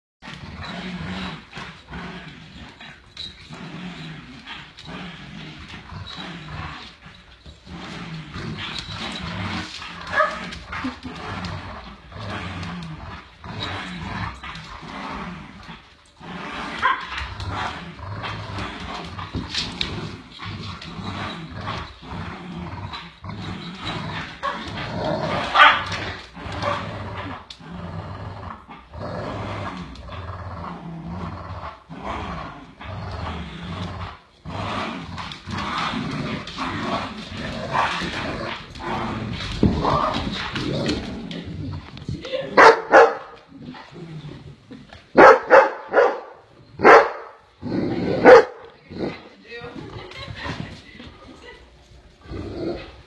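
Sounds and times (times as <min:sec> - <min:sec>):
dogs growling: 0:00.2 - 0:53.0
dog barking: 0:42.6 - 0:43.3, 0:45.2 - 0:47.3.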